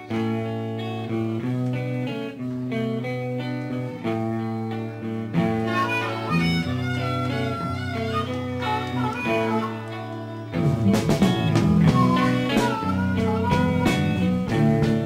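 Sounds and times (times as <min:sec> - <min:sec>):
guitar music: 0:00.0 - 0:15.0.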